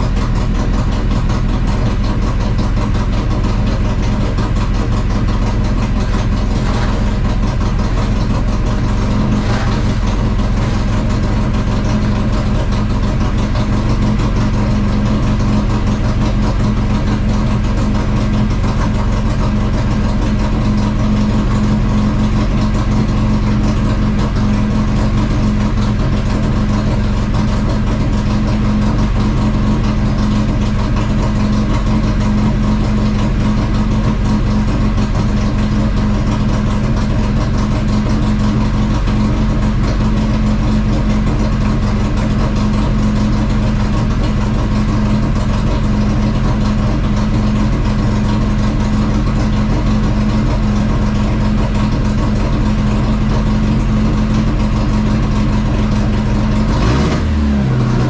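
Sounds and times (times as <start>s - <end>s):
car engine running steadily: 0.0s - 58.0s.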